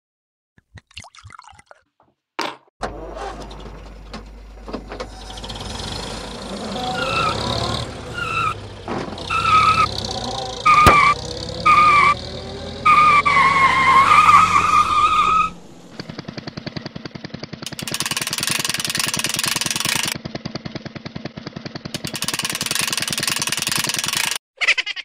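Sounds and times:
engine running: 2.8 - 24.4
wavering tire squeal: 5.0 - 16.4
winch rattling clatter: 16.6 - 20.2, 21.8 - 24.4.

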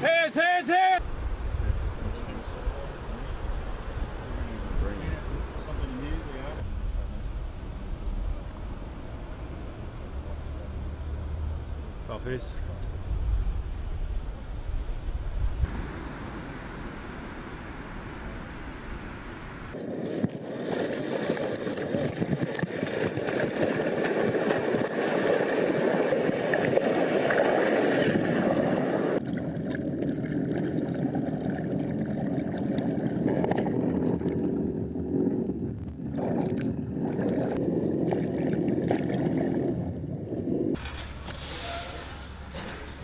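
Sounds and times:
ocean waves breaking: 15.7 - 40.8.

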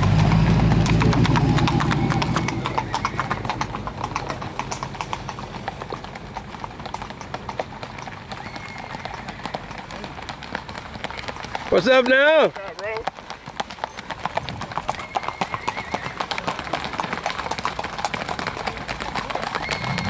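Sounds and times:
low engine-like hum: 0.0 - 4.6
horse hoofbeats on dirt road: 0.0 - 20.0.

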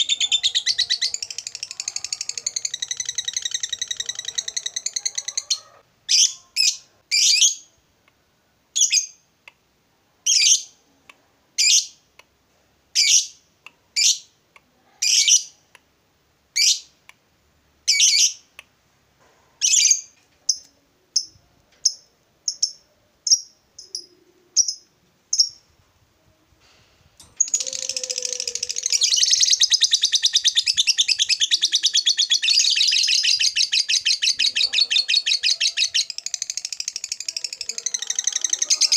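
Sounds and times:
lovebird rapid chattering trill: 0.0 - 5.5
lovebird chirps: 0.0 - 7.8, 19.6 - 25.7, 27.2 - 38.9.

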